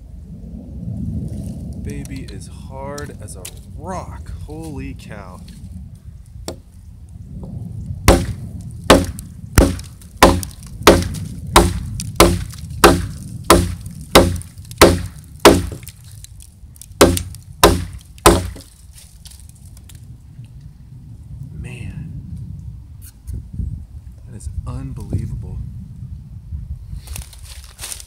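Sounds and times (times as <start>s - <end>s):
hatchet chopping log: 6.4s - 6.7s, 8.1s - 16.0s, 17.0s - 18.7s.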